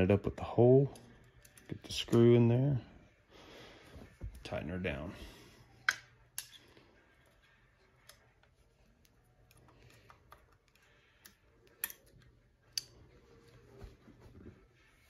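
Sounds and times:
screwdriver clicking on metal: 10.7s - 13.0s.

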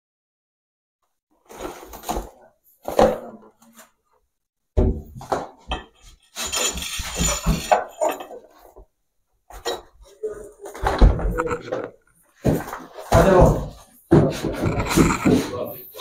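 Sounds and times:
wooden parts knocking and clattering: 4.8s - 8.8s.

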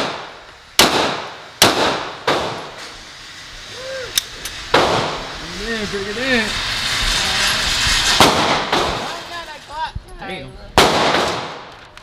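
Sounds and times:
pistol shots echoing: 0.0s - 2.7s, 10.8s - 11.7s.

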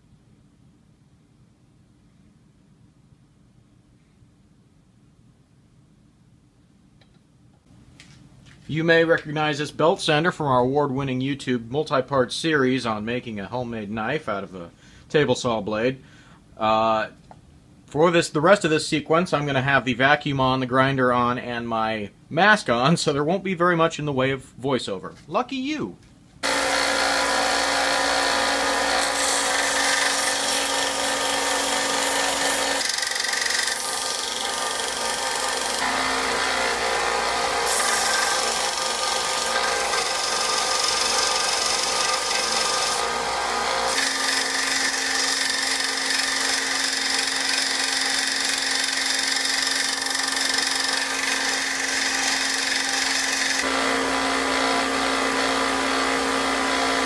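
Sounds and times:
shop vacuum running: 26.4s - 32.9s, 35.8s - 45.6s, 53.3s - 57.0s
belt sander grinding metal: 26.4s - 57.0s.

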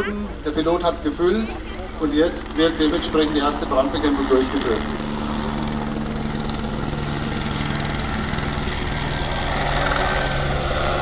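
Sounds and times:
helicopter rotor chop: 0.0s - 11.0s.

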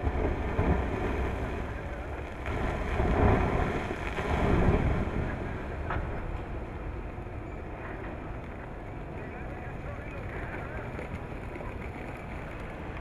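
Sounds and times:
machinery: 0.0s - 13.0s
wind on microphone: 0.0s - 13.0s.

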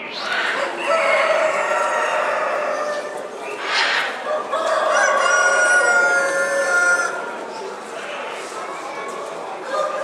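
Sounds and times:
roosters crowing: 0.4s - 7.3s.

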